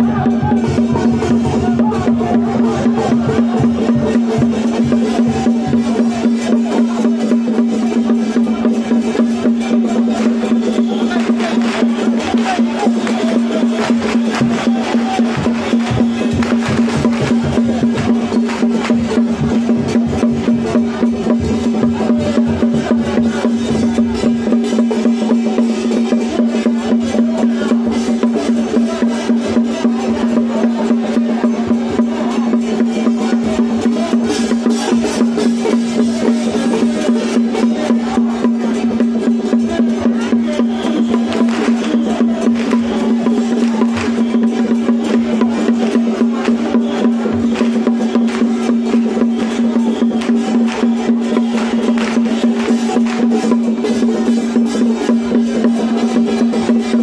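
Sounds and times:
fast drumming: 0:00.0 - 0:57.0
wood-block clacks: 0:00.0 - 0:57.0.

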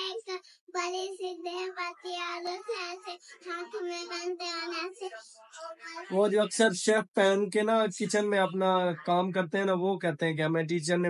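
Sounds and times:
girl singing: 0:00.0 - 0:06.0.

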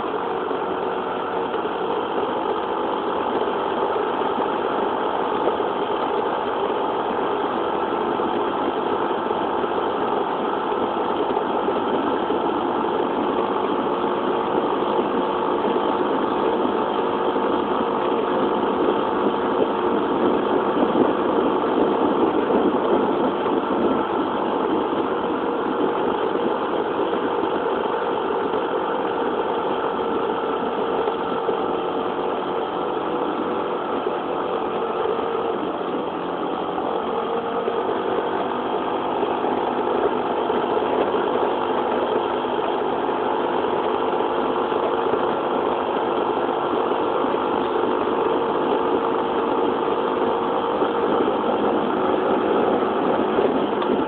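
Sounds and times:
scooter engine running: 0:00.0 - 0:54.0.

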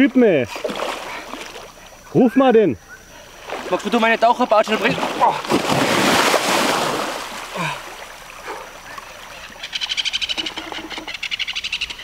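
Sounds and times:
fish splashing in water: 0:00.4 - 0:02.0, 0:03.3 - 0:12.0.

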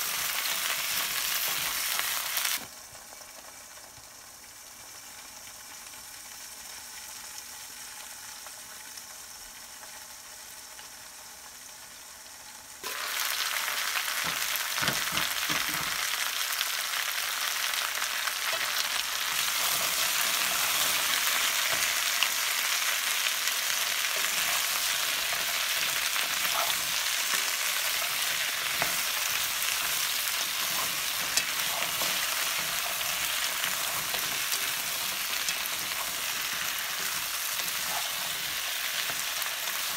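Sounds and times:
vegetables sizzling in a pan: 0:00.0 - 0:39.9
wooden spatulas stirring: 0:24.2 - 0:39.9.

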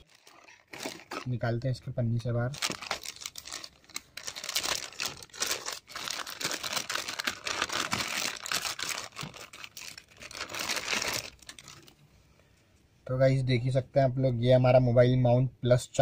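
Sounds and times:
plastic bag crinkling: 0:00.0 - 0:01.6, 0:02.5 - 0:12.0.

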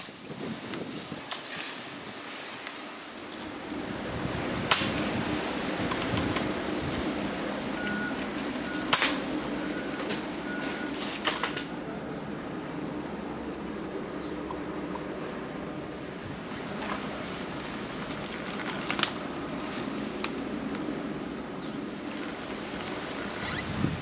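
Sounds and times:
steady outdoor hiss: 0:00.0 - 0:24.0
sharp crack: 0:04.6 - 0:05.2, 0:08.9 - 0:09.3.

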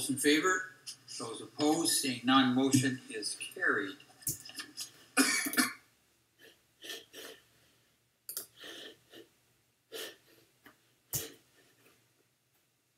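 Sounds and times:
faint breaths: 0:06.4 - 0:12.2.

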